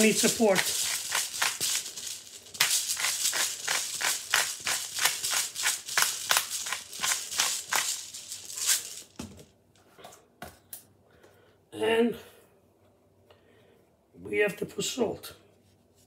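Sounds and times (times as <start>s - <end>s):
pepper grinder grinding: 0.0s - 9.2s.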